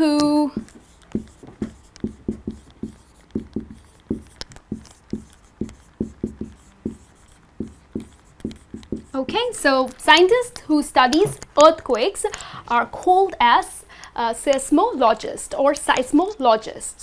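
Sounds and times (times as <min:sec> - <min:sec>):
marker writing on whiteboard: 0:00.0 - 0:10.5.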